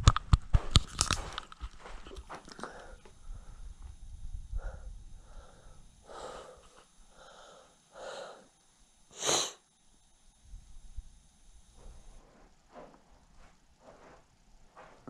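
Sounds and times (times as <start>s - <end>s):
person breathing hard: 2.5s - 3.8s, 4.5s - 8.5s.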